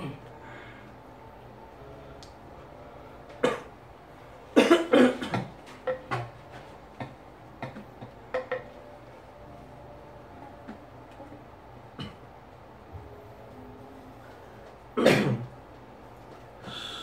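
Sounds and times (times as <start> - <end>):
person coughing: 3.4 - 3.7, 4.6 - 5.5, 15.0 - 15.5.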